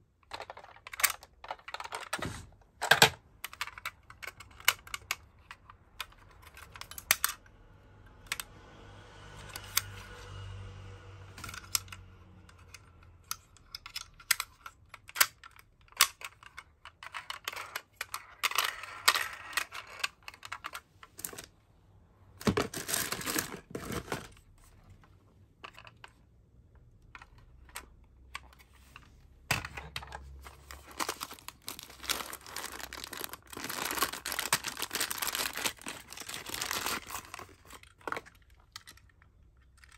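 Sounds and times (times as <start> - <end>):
plastic bag crinkling: 30.3 - 38.3.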